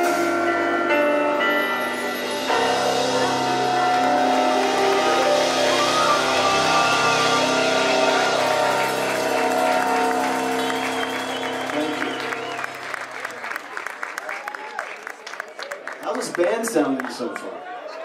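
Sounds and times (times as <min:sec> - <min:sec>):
held keyboard and guitar chords: 0:00.0 - 0:12.9
live rock band playing: 0:00.0 - 0:13.2.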